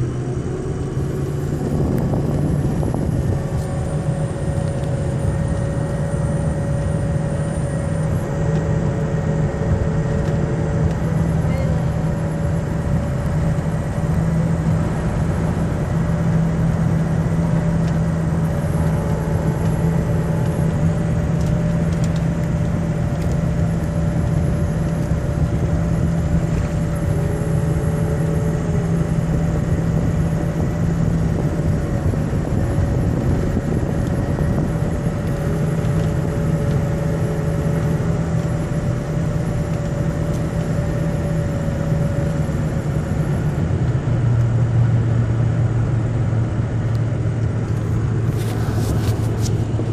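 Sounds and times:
diesel engine and road drone: 0.0s - 49.9s
strong low hum: 0.0s - 49.9s.

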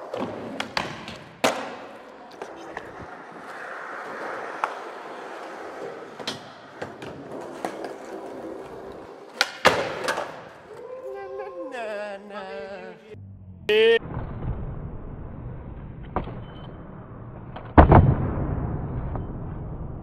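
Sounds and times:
skateboard rolling on concrete: 0.0s - 10.9s
skateboard impact on ledge: 0.1s - 1.9s, 9.4s - 10.5s
skateboard clacks: 4.4s - 10.6s.

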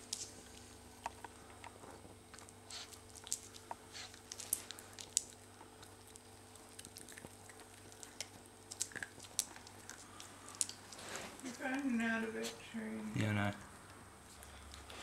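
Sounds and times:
puppy clicks and scratches: 0.0s - 11.8s
puppy chewing: 0.0s - 12.7s.

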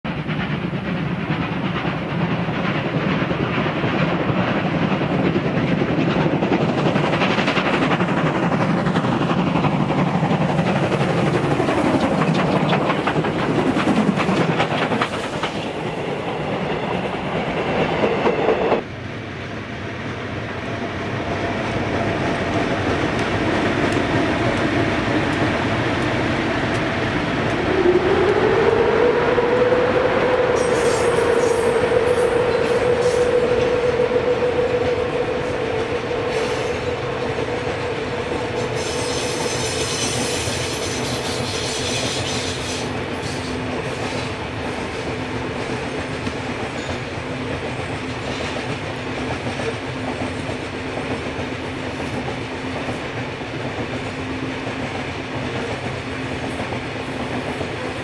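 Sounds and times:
electric freight train rolling past: 0.1s - 58.0s
train with falling pitch sweeps: 3.7s - 48.8s.

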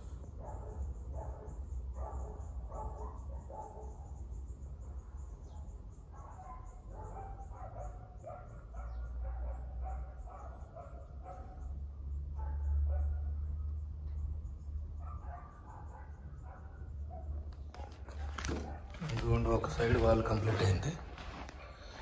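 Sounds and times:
dog barking: 0.3s - 4.2s, 6.1s - 13.6s, 15.0s - 19.1s, 21.5s - 22.0s.

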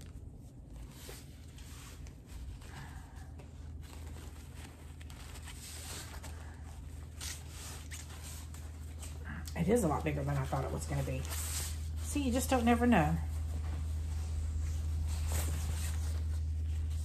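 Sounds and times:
banner rustling and crinkling: 0.0s - 17.0s
low hum: 0.0s - 17.0s.

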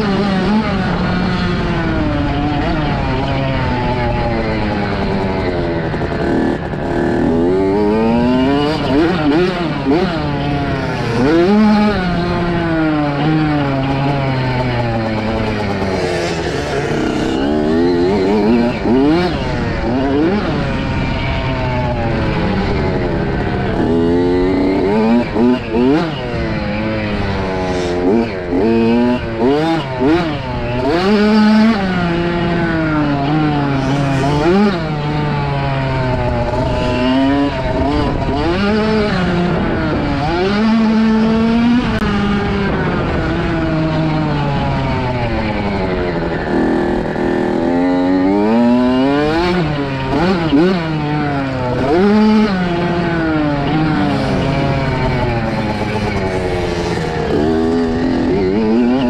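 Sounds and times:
motorbike engine revving: 0.0s - 59.0s.

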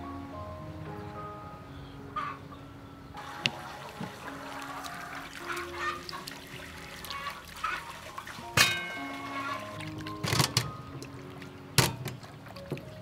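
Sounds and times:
water sloshing in metal bowl: 3.2s - 13.0s.

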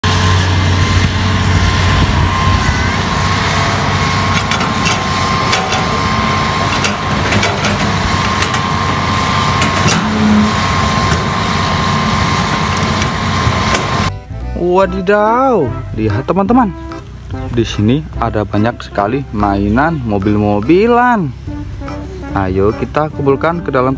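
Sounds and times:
high whine: 0.0s - 14.4s
excavator diesel engine running: 0.0s - 23.9s
sharp clicks and knocks: 4.3s - 11.3s, 12.2s - 14.1s.

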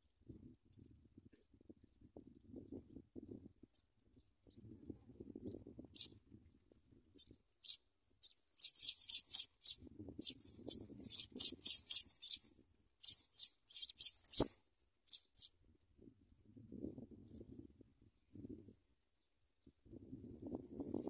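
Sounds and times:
nestlings cheeping: 8.6s - 15.5s.

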